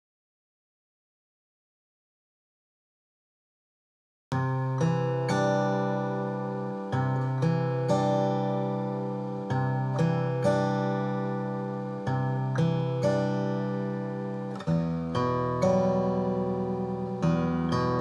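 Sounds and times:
acoustic guitar strumming: 4.4 - 18.0.

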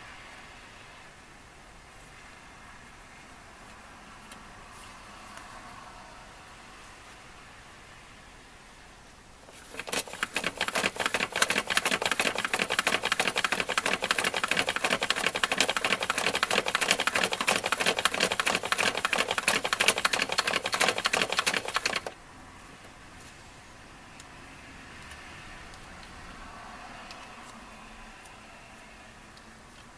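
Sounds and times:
plastic crank clattering: 9.5 - 22.1.

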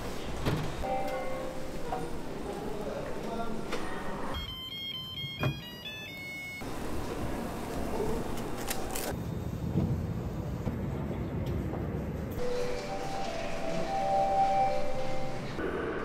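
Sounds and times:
kitchen background hum: 0.0 - 9.2.

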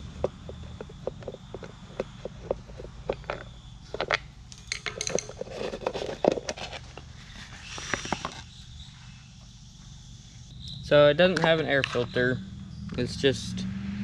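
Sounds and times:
screw clinking on metal bench: 4.0 - 5.4
plastic lid handled: 4.9 - 8.4.

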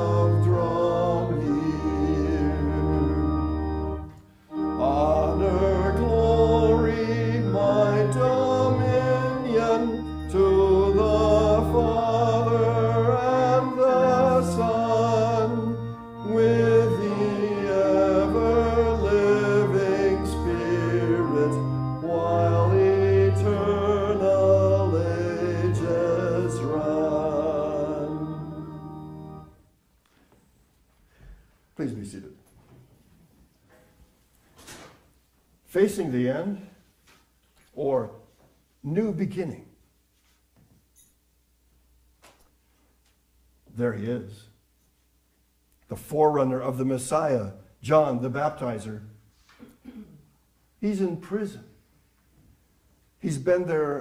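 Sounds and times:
congregation singing a hymn: 0.0 - 29.6
organ chords: 0.0 - 29.8, 53.2 - 54.0.

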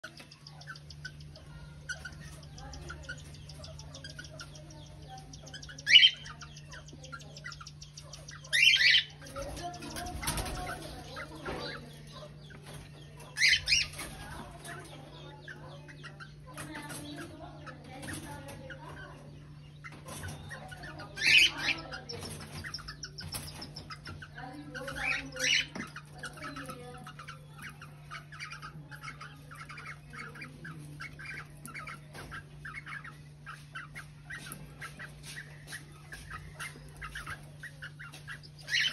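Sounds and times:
soft bird chirping: 0.0 - 38.9
wing flapping: 9.3 - 11.2.

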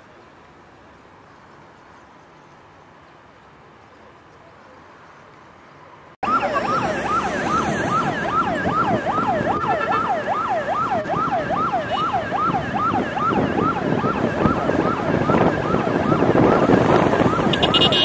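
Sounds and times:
traffic road noise: 0.0 - 18.0
siren yelping: 6.2 - 18.0.

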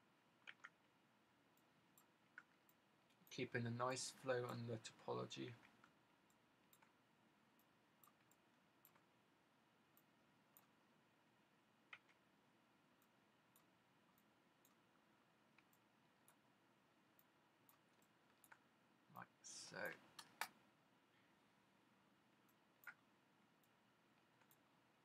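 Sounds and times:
computer mouse clicks: 0.3 - 3.4, 5.5 - 9.2, 9.9 - 10.8, 11.8 - 12.3, 12.9 - 14.9, 15.5 - 16.5, 17.1 - 18.7, 19.7 - 20.6, 22.3 - 24.7.

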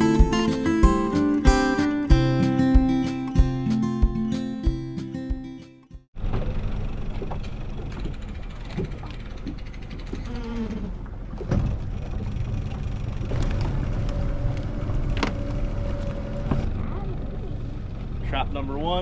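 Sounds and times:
wind: 6.1 - 19.0
boat motor buzzing hum: 6.2 - 19.0
water noise: 6.2 - 19.0.

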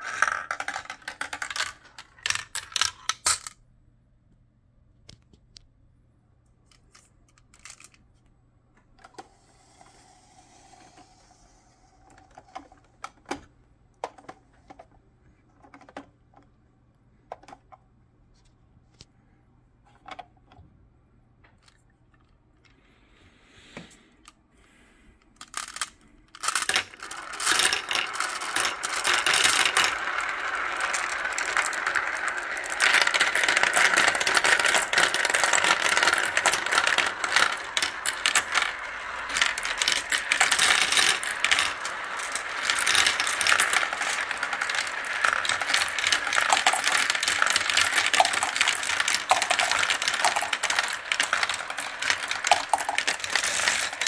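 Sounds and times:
marbles rattling in plastic bowl: 0.0 - 3.5, 7.5 - 8.0, 25.4 - 54.0
marbles clicking in plastic tubes: 0.0 - 3.6, 6.7 - 8.0, 25.4 - 54.0.

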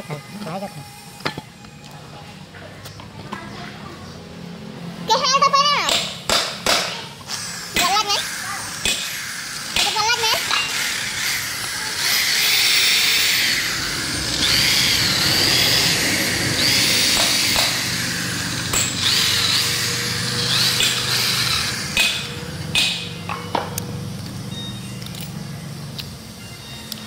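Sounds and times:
electric drill drilling metal: 7.2 - 23.5.

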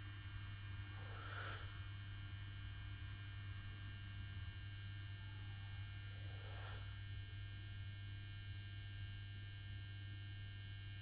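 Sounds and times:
buzzy electrical mains hum: 0.0 - 11.0
soft breaths: 0.8 - 1.9, 5.3 - 7.3.

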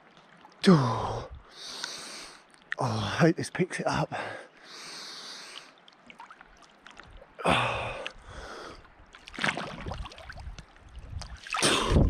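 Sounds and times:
sharp gasping breaths: 7.5 - 8.9
person splashing in water: 9.2 - 10.5, 11.2 - 12.0.

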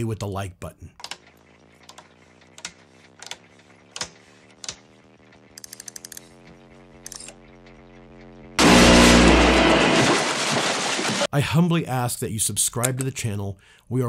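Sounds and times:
faint electrical hum: 0.0 - 9.5
dial ratcheting clicks: 5.5 - 6.2.

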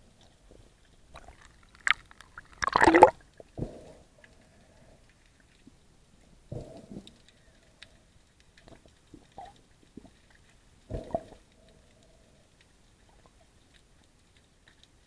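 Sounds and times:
faint underwater clicking: 6.6 - 15.0.

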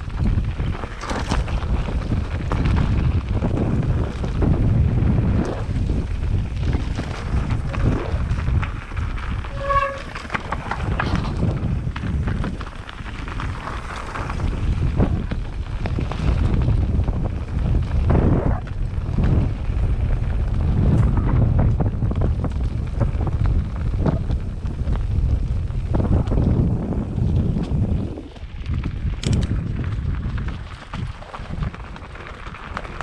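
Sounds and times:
mountain bike rattling on rough trail: 0.0 - 33.0
wind buffeting microphone: 0.0 - 33.0
short squeak: 9.5 - 10.2.

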